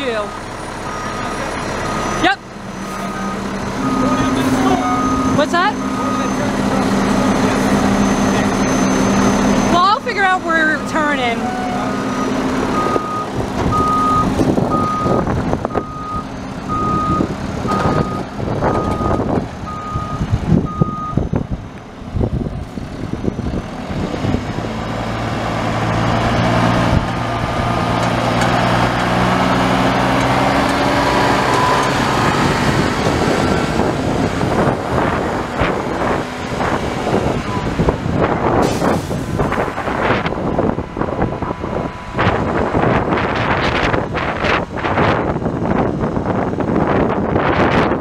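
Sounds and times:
truck backup alarm beeping: 0.0 - 21.4, 29.4 - 37.8
diesel engine revving: 0.0 - 48.0.

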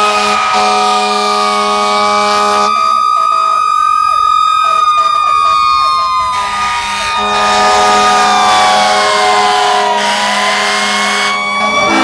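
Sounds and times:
horn blast: 0.0 - 2.8, 6.3 - 12.0
fire engine siren wailing: 0.0 - 12.0
fire engine siren yelping: 0.0 - 12.0.

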